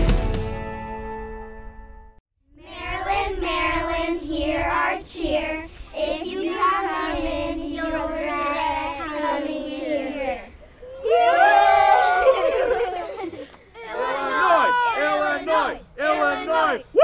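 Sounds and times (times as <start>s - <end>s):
girls singing a cheer in unison: 2.6s - 10.6s.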